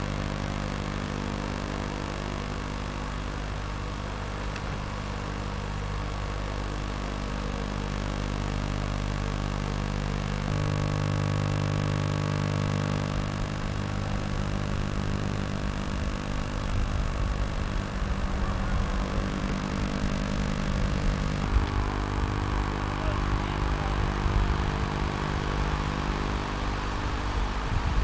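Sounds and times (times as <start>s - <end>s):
diesel engine of compactor running: 8.2s - 28.0s.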